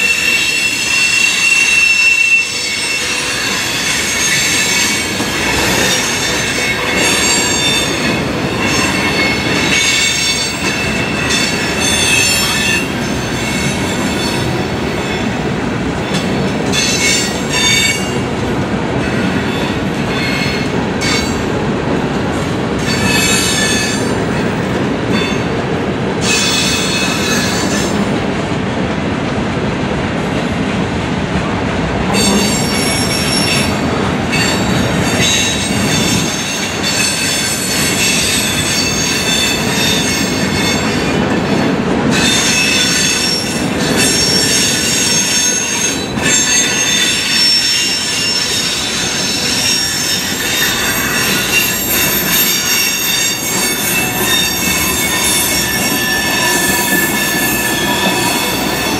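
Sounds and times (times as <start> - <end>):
metallic wheel squeals: 0.0 - 15.3, 32.2 - 58.9
train wheels rumbling on rails: 0.0 - 58.9.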